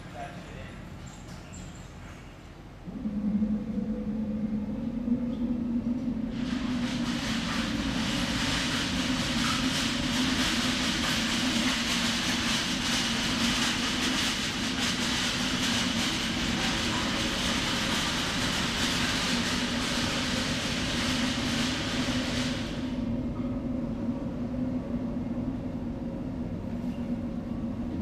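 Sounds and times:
machine hum: 2.6s - 28.0s
loud rush of air: 2.9s - 23.3s.

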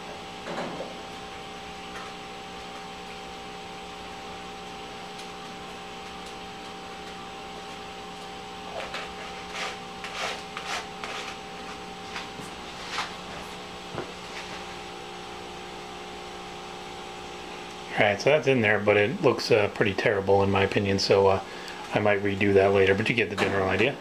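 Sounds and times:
steady low hum: 0.0s - 24.0s
hands scraping foam board: 8.8s - 13.2s.

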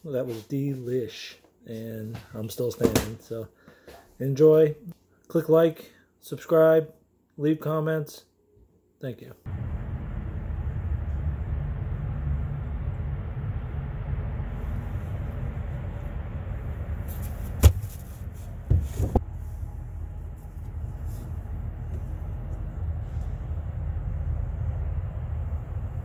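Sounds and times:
steady low rumble: 9.5s - 26.0s.

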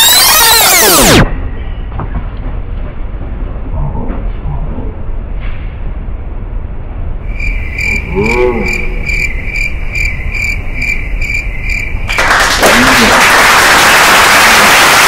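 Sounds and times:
warbling tone: 0.0s - 1.3s
cricket chirps: 7.2s - 12.2s.

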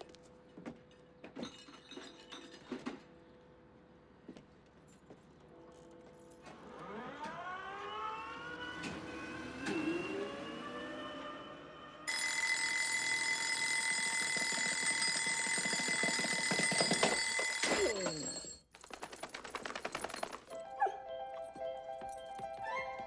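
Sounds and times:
bell alarm clock ringing: 12.1s - 18.6s
music: 20.5s - 23.0s.

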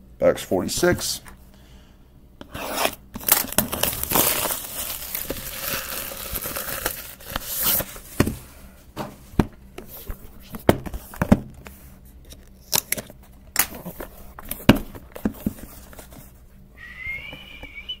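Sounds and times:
packaging crinkling and tearing: 3.2s - 8.0s.

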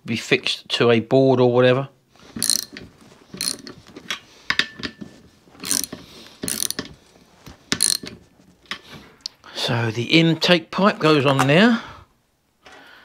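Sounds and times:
socket ratchet clicking: 2.4s - 2.8s, 3.4s - 3.7s, 5.6s - 6.9s, 7.8s - 8.1s.

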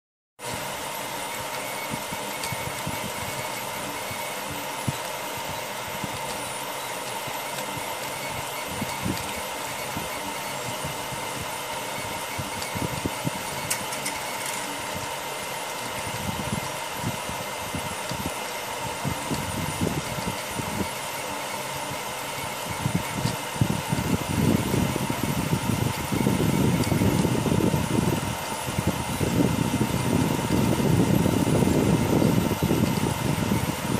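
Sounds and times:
motors buzzing and knocking: 0.4s - 33.9s
printer fans whirring: 0.4s - 33.9s.

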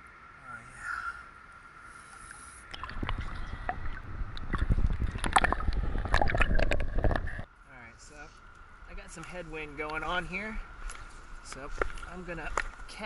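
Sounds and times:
water splashing: 2.2s - 7.5s
water buffeting microphone: 2.6s - 7.5s.

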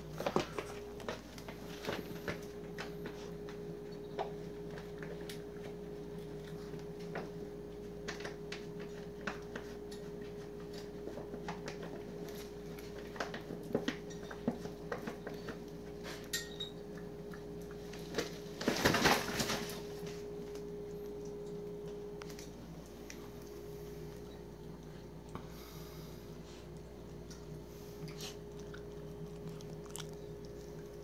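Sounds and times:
plastic bag crinkling: 18.1s - 20.0s.

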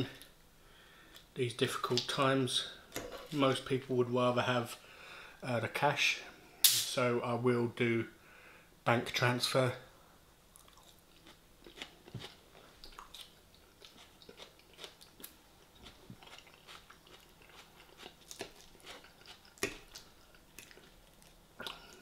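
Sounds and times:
chewing crisp lettuce: 10.6s - 22.0s.

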